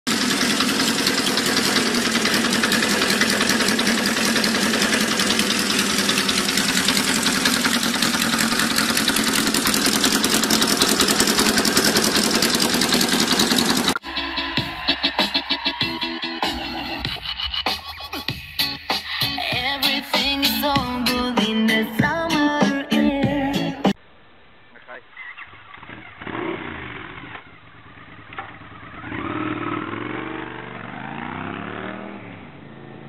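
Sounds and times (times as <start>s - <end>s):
motorcycle engine idling: 0.1s - 14.0s, 25.2s - 33.0s
electronic music with record scratching: 14.0s - 21.4s.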